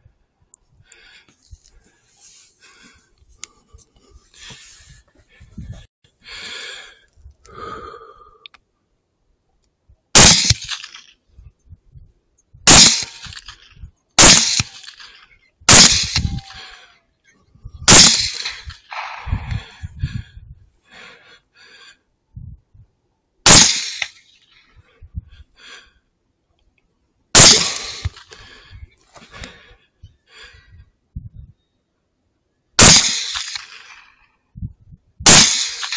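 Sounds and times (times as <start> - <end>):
rifle shots: 10.2 - 10.9, 12.7 - 13.4, 14.2 - 14.9, 15.7 - 16.4, 17.9 - 19.5, 23.5 - 24.1, 27.4 - 28.2, 32.8 - 34.0, 35.2 - 35.9.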